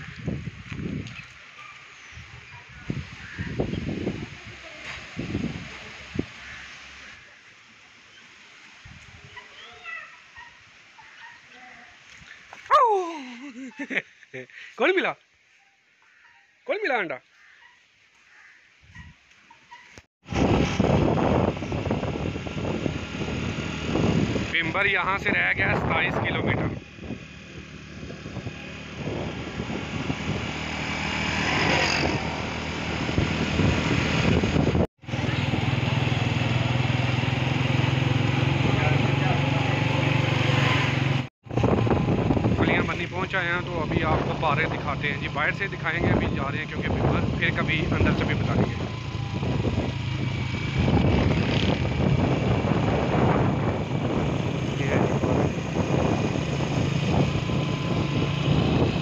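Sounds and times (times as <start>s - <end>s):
wind and road noise: 0.0s - 14.0s, 17.4s - 59.0s
vehicle engine running: 26.5s - 59.0s.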